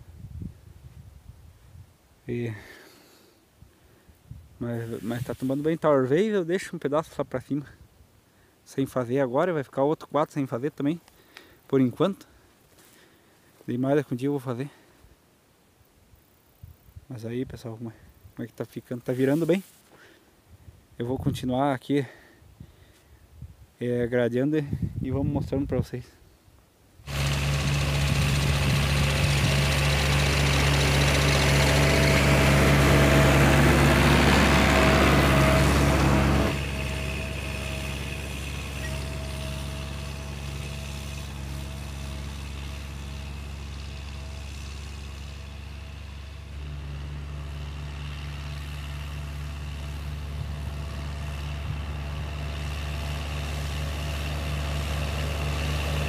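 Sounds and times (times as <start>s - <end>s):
tractor diesel engine droning: 27.1s - 56.0s.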